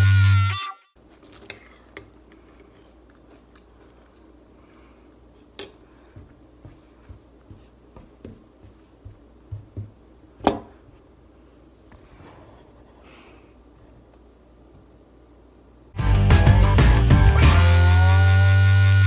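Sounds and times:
hands patting on table: 5.6s - 11.1s.

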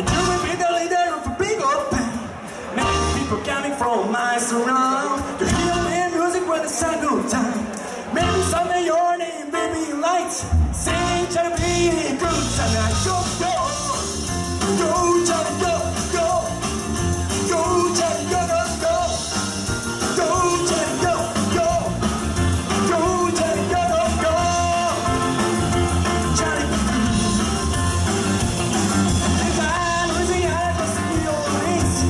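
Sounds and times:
bass guitar: 0.0s - 0.8s, 1.9s - 3.6s, 5.2s - 6.0s, 8.2s - 8.7s, 10.4s - 32.0s
drums: 0.0s - 8.9s, 9.8s - 32.0s
man singing: 0.0s - 19.4s, 20.0s - 27.8s, 29.1s - 32.0s
electric guitar: 12.3s - 32.0s.

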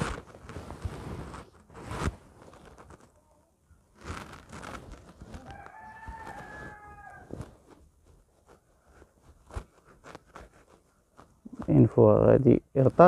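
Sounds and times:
knocks and rustles: 0.0s - 3.2s, 3.9s - 11.7s
rooster crowing: 5.4s - 7.5s.

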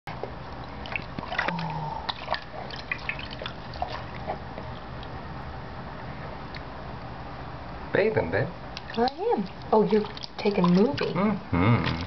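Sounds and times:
bath water splashing and dripping: 0.2s - 5.2s, 8.8s - 12.0s.

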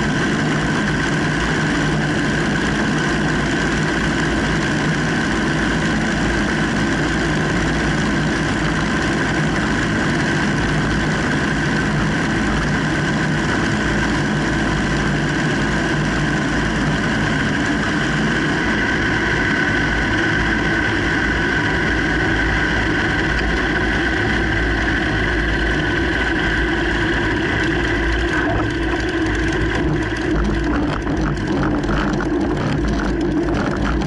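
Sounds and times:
propeller plane engine: 0.0s - 34.0s.

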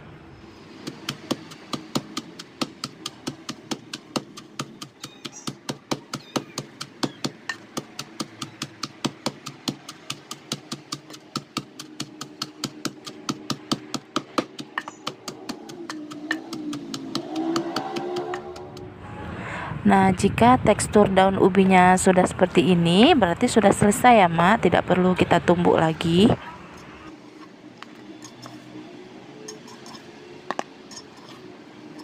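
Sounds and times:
pestle pounding in wooden mortar: 0.8s - 18.9s.

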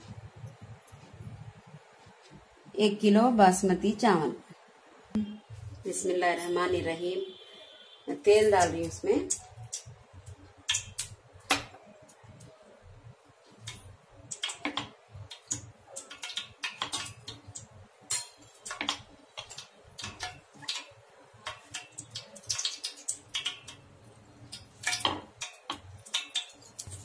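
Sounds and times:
oil crackling and popping: 8.6s - 27.0s.

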